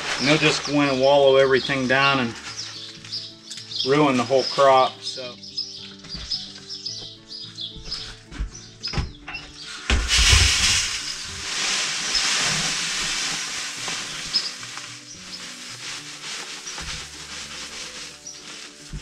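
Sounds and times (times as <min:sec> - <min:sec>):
seed pouring hiss: 0:00.0 - 0:02.8, 0:09.6 - 0:19.0.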